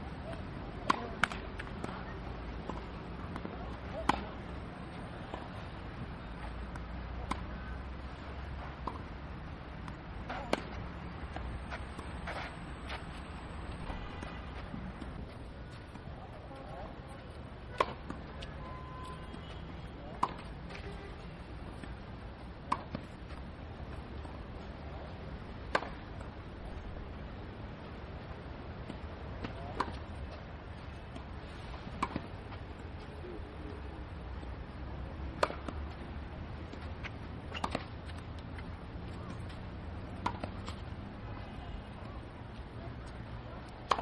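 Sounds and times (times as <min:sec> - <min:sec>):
racket hitting tennis ball: 0:00.8 - 0:02.0, 0:07.2 - 0:07.4, 0:17.7 - 0:18.4, 0:20.1 - 0:20.9, 0:22.7 - 0:23.4, 0:25.7 - 0:26.0, 0:32.0 - 0:32.3, 0:35.4 - 0:35.8, 0:37.5 - 0:38.2, 0:40.1 - 0:40.8.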